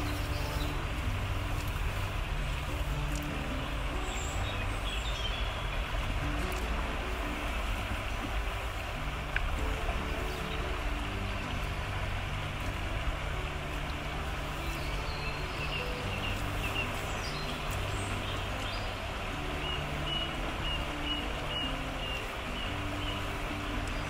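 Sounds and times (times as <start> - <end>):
stream water flowing: 0.0 - 24.0
high bird calls: 14.5 - 24.0.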